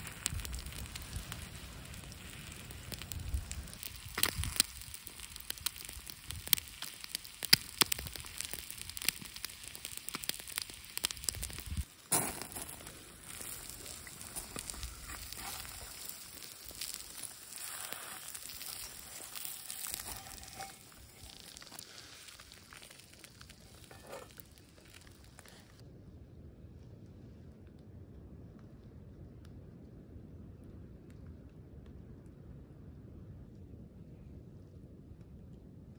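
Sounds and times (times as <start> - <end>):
eggs sizzling in a skillet: 0.0 - 25.8
sharp crackling pops: 0.0 - 25.8.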